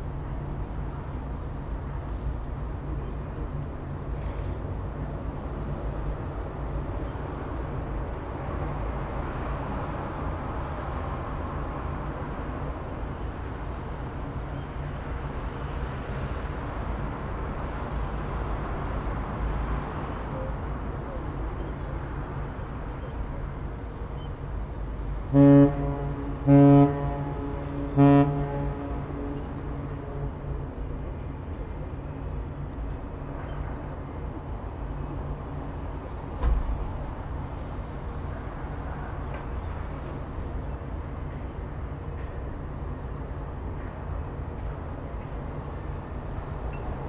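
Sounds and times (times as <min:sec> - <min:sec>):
ship engine rumbling: 0:00.0 - 0:47.0
ship's horn blasts: 0:25.1 - 0:31.2.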